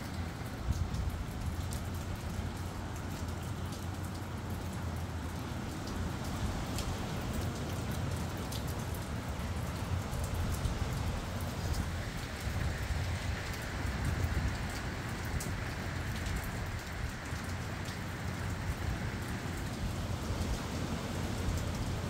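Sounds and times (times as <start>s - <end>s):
steady rain: 0.0s - 22.0s
wind buffeting microphone: 8.9s - 22.0s.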